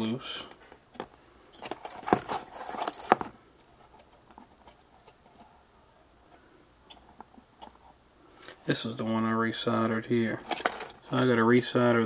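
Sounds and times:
rustling on a workbench: 0:00.0 - 0:05.5.

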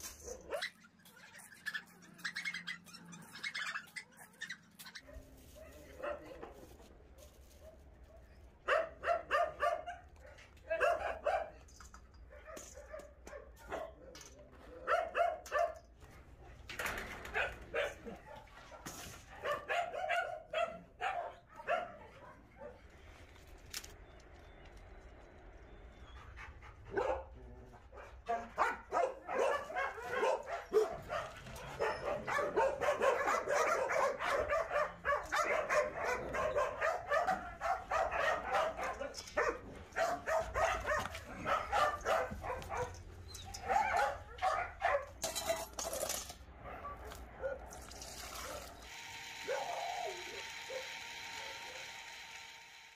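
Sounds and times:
dogs barking and yipping: 0:00.0 - 0:16.0, 0:16.8 - 0:23.0, 0:25.6 - 0:51.9.

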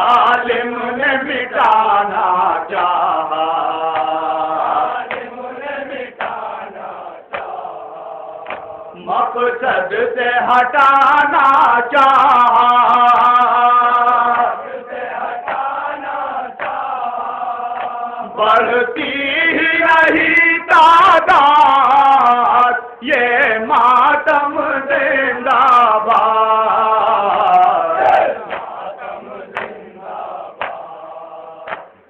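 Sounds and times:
man chanting into a microphone: 0:00.0 - 0:05.1, 0:08.9 - 0:14.7, 0:17.3 - 0:28.5.

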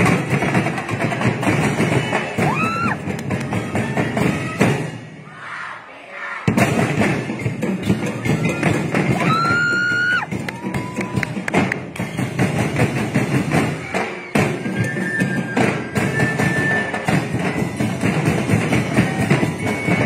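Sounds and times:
drum ensemble playing fast beat: 0:00.0 - 0:05.2, 0:06.5 - 0:20.0.

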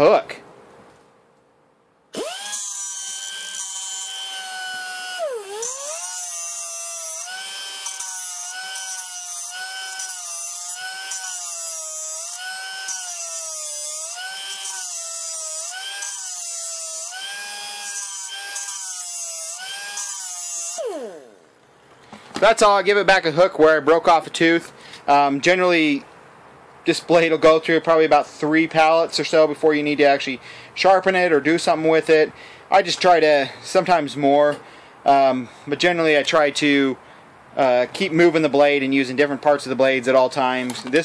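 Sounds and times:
air grinder whining on saw blade: 0:02.2 - 0:21.5.

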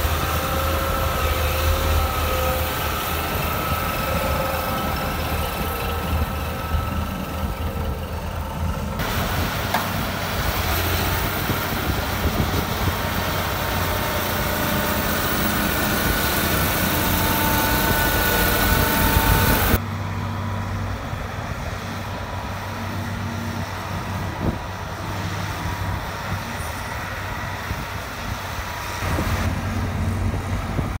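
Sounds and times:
road roller diesel engine running: 0:00.0 - 0:31.0.

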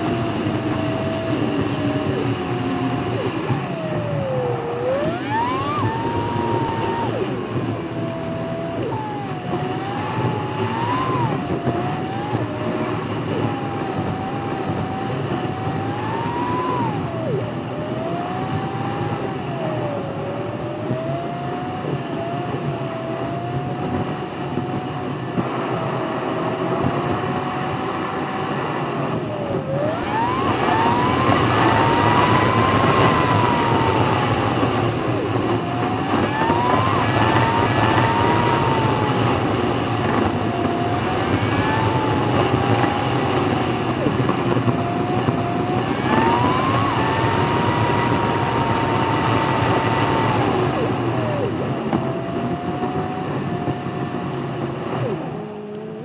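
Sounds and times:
car engine revving: 0:00.0 - 0:56.0
tyre and wind noise: 0:00.0 - 0:56.0.

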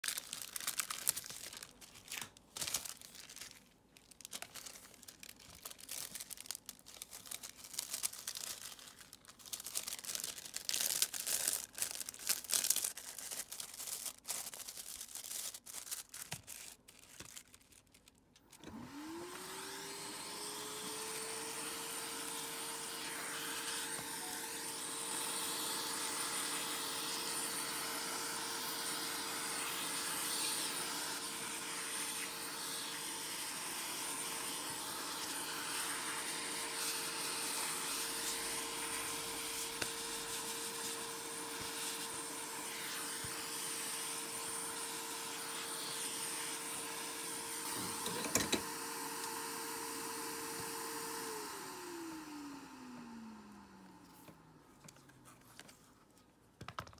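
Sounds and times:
plastic film crinkling: 0:00.0 - 0:18.6
heat gun fan whine: 0:18.5 - 0:54.5.

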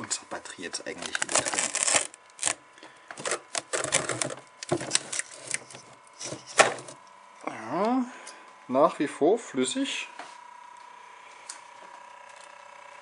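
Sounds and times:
man speaking: 0:00.0 - 0:01.6
faint steady whine: 0:00.0 - 0:13.0.

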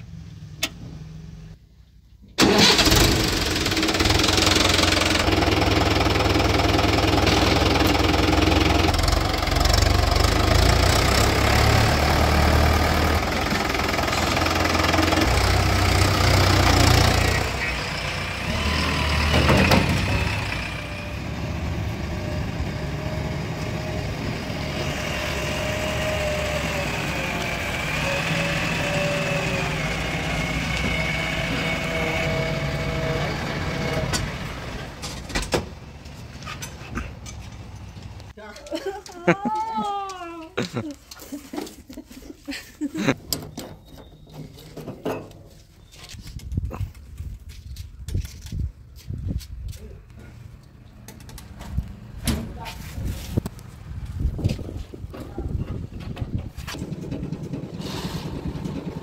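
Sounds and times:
tractor diesel engine running: 0:00.0 - 0:38.4, 0:50.1 - 0:59.0
backhoe diesel engine running: 0:02.4 - 0:38.3, 0:50.1 - 0:59.0.

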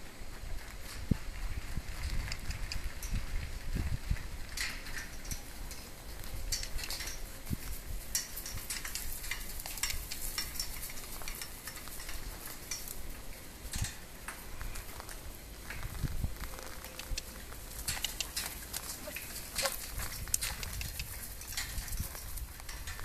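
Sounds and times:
crunching over dry leaves: 0:06.0 - 0:23.0.

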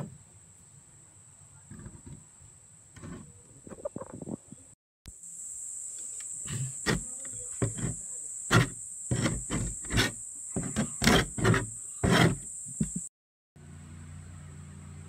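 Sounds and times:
steady high-pitched whine: 0:05.1 - 0:13.1
metal tool scraping wax off wood: 0:06.4 - 0:13.0.

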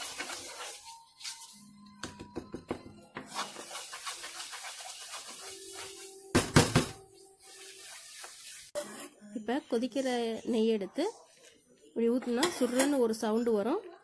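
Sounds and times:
wooden spatula scraping a pan: 0:00.0 - 0:01.6, 0:03.2 - 0:06.3, 0:07.1 - 0:09.2.

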